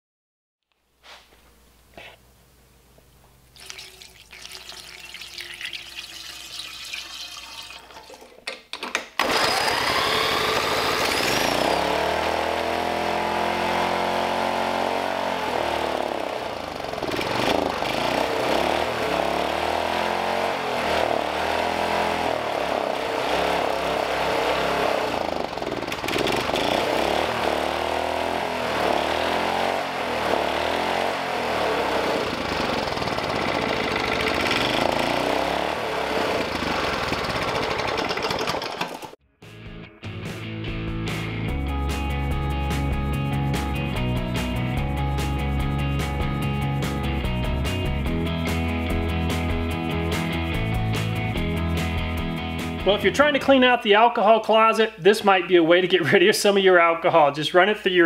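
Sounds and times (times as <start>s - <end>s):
liquid pouring from glass bottle: 3.6s - 8.6s
small engine running unevenly: 9.2s - 39.2s.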